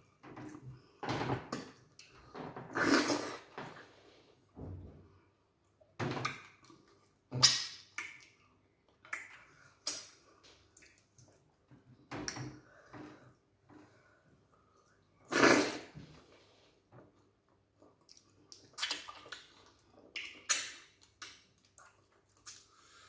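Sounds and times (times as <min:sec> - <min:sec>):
wet eating squelches: 0:17.7 - 0:23.0.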